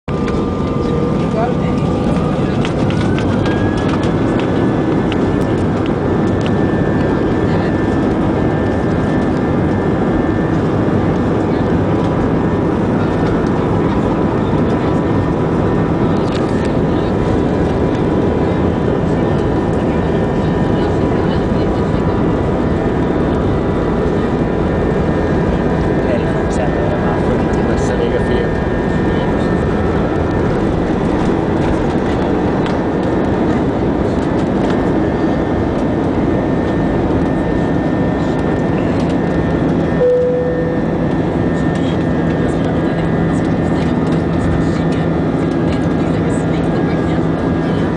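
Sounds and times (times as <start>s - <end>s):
jet engine and airflow noise: 0.1s - 47.9s
steady low hum: 0.1s - 47.9s
faint steady whine: 39.4s - 42.0s
brief cabin tone: 40.0s - 41.2s.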